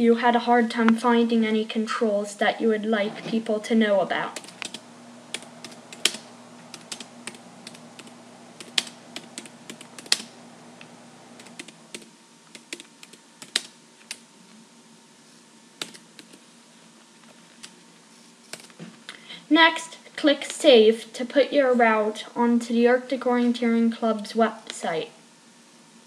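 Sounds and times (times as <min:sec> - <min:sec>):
computer keyboard key clicks: 0:04.4 - 0:10.3, 0:15.8 - 0:16.4.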